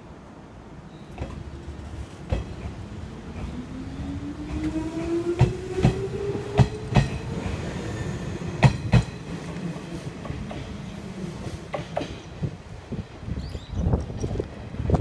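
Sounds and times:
train wheels clacking on rail joints: 0:01.1 - 0:03.6, 0:04.4 - 0:07.6, 0:08.6 - 0:09.6, 0:11.6 - 0:12.5.

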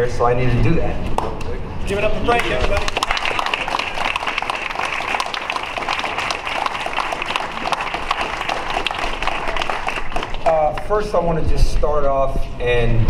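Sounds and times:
crowd applauding: 0:02.2 - 0:11.0.

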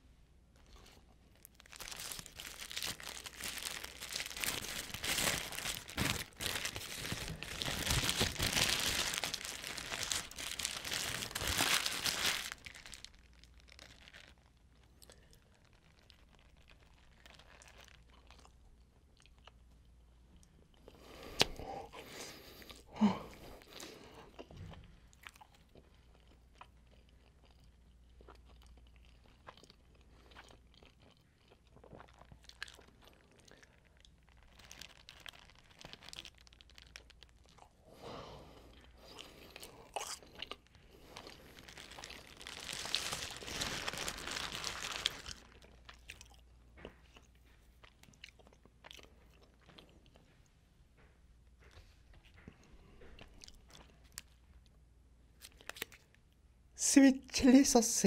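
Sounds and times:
paper wrapper crinkling: 0:00.7 - 0:18.2, 0:33.9 - 0:37.6, 0:40.7 - 0:46.2
biting and chewing: 0:38.8 - 0:50.3.

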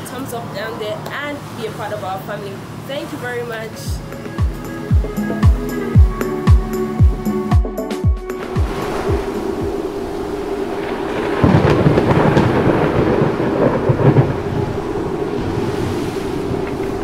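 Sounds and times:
rain rushing: 0:08.3 - 0:17.0
thunder rumbling: 0:08.3 - 0:17.0.

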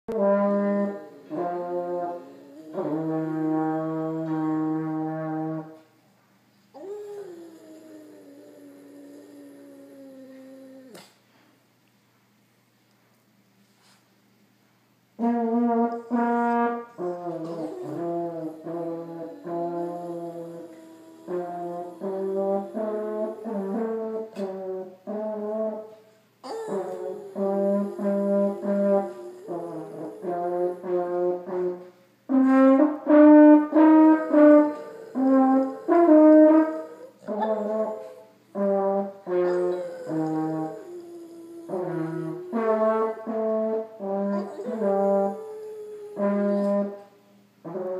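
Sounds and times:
dog howling: 0:01.1 - 0:04.7, 0:06.8 - 0:11.2, 0:16.1 - 0:24.6, 0:26.4 - 0:31.6, 0:33.6 - 0:38.4, 0:39.2 - 0:47.1.

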